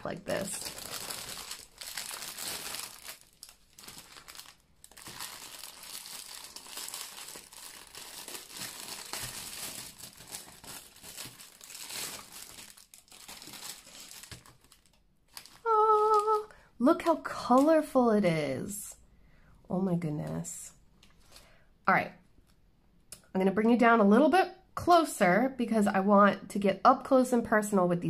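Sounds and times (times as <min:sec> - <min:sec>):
plastic packaging crinkling: 0:00.0 - 0:16.6.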